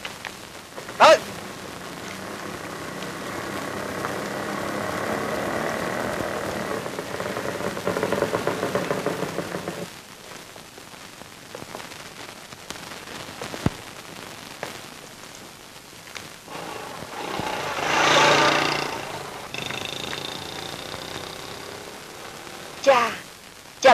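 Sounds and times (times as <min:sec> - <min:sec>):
crackling hiss: 0:00.0 - 0:23.9
street traffic hum: 0:00.7 - 0:09.9, 0:16.5 - 0:22.9.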